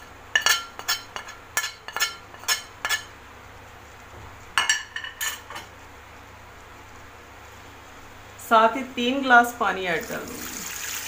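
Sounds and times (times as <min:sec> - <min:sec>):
spoon clinking against plate: 0:00.4 - 0:03.1.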